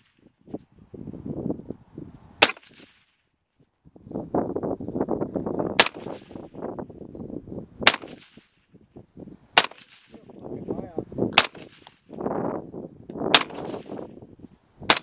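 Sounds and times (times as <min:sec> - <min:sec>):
suppressed pistol shots: 0:02.4 - 0:03.1, 0:05.8 - 0:06.4, 0:07.8 - 0:08.5, 0:09.6 - 0:10.2, 0:11.3 - 0:12.1, 0:13.3 - 0:14.1.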